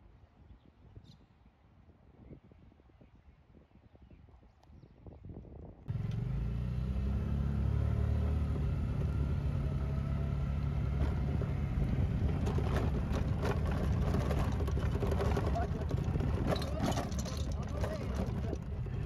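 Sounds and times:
golf cart engine drone: 0:05.9 - 0:19.0
knocks and rattles: 0:11.0 - 0:19.0.

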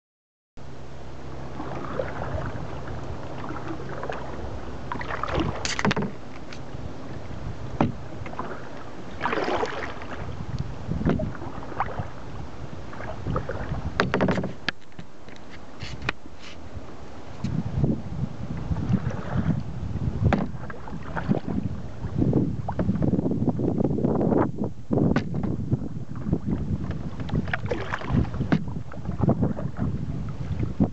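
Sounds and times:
steady low rumble: 0:00.6 - 0:30.9
water slapping against boat hull: 0:01.5 - 0:06.7, 0:07.7 - 0:12.2, 0:12.9 - 0:16.6, 0:18.5 - 0:23.3, 0:25.0 - 0:30.9
loud splashes: 0:03.4 - 0:05.7, 0:09.2 - 0:10.2, 0:27.6 - 0:28.4.

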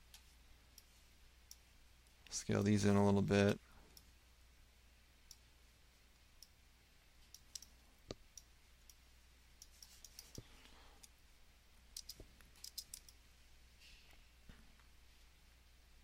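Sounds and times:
mouse and keyboard clicks: 0:09.6 - 0:10.4, 0:12.0 - 0:13.2.

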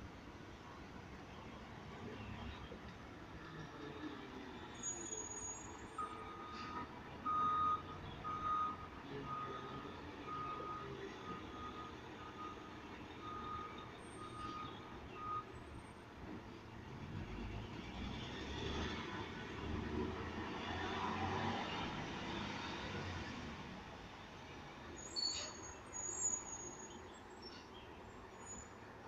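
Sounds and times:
truck reverse alarm beeping: 0:05.1 - 0:15.6.

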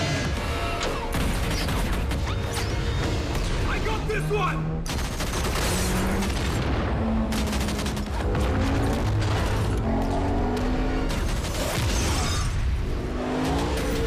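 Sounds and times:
rapid gunfire: 0:00.1 - 0:02.5, 0:04.8 - 0:10.1, 0:11.0 - 0:12.5
explosions: 0:04.9 - 0:10.2.

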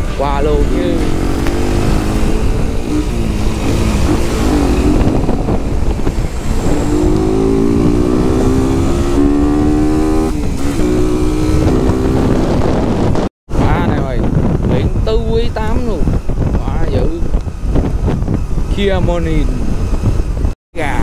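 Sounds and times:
wind on microphone: 0:00.0 - 0:21.0
motorcycle engine running: 0:00.6 - 0:13.2.

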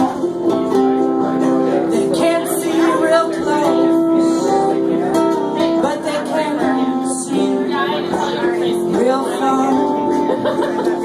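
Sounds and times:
acoustic guitar: 0:00.0 - 0:11.0
woman singing: 0:01.8 - 0:11.0.

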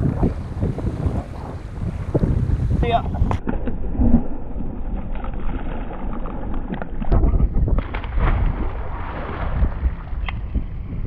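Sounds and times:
wind buffeting microphone: 0:00.0 - 0:04.4, 0:07.1 - 0:11.0
water splashing against kayak: 0:00.0 - 0:11.0.

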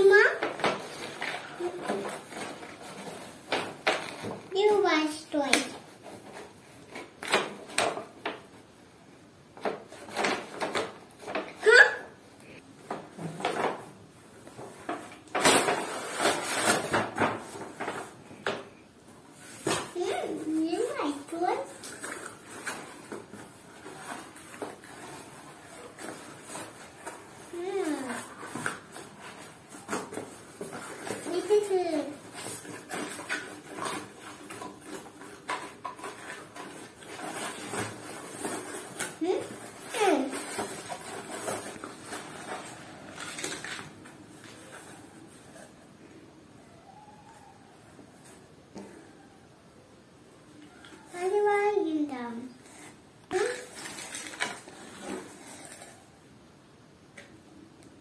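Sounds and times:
cardboard scraping and rustling: 0:00.0 - 0:07.8, 0:14.6 - 0:18.2, 0:19.3 - 0:45.8, 0:52.2 - 0:56.2.

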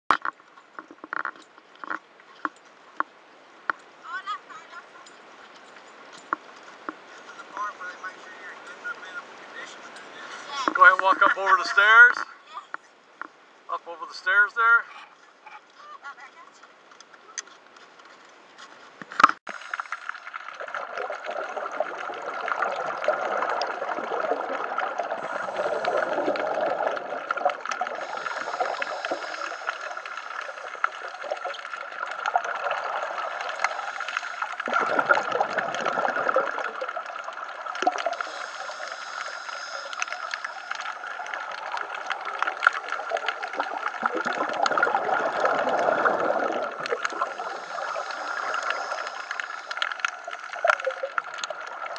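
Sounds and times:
steady hiss: 0:19.2 - 0:20.9, 0:23.3 - 0:44.2, 0:44.8 - 0:51.9
diver breathing bubbles gurgling: 0:19.5 - 0:51.9.

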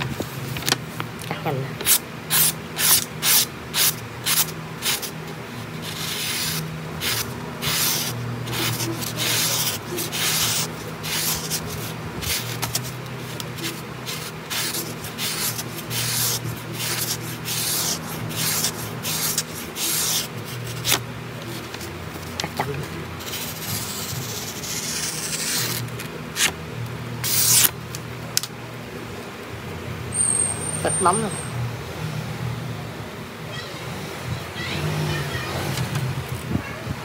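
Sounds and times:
knife slicing paper: 0:01.9 - 0:05.2, 0:05.8 - 0:21.9, 0:23.2 - 0:26.5, 0:27.2 - 0:27.7.

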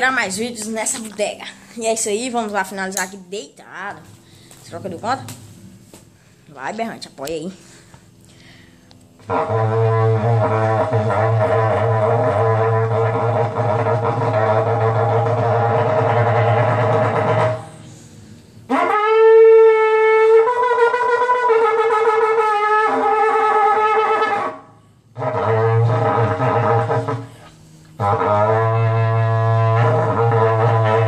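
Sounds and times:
horn blasts: 0:08.6 - 0:31.0.

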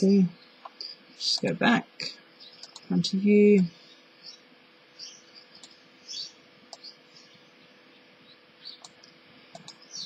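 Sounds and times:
low steady hum: 0:00.0 - 0:10.0
computer mouse clicks: 0:02.6 - 0:02.9, 0:05.6 - 0:05.8, 0:08.8 - 0:09.8.

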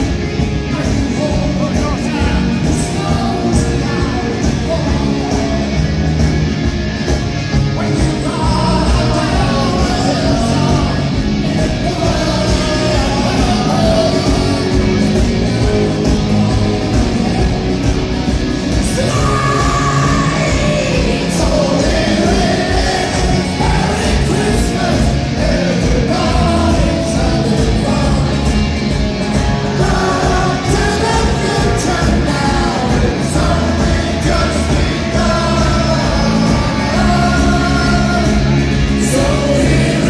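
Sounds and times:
live rock band playing: 0:00.0 - 0:40.0
person singing: 0:07.8 - 0:18.0, 0:18.7 - 0:40.0.

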